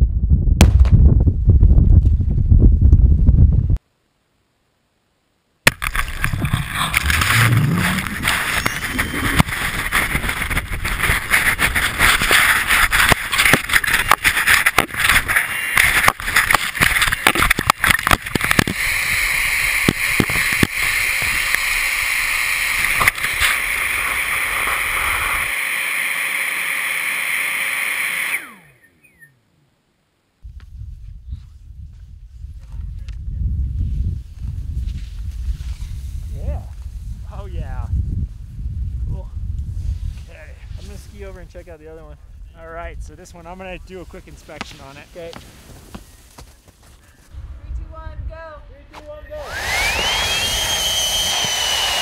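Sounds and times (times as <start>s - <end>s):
snow rushing and scraping: 6.0s - 25.8s, 33.9s - 37.4s, 39.7s - 41.7s, 43.6s - 46.8s.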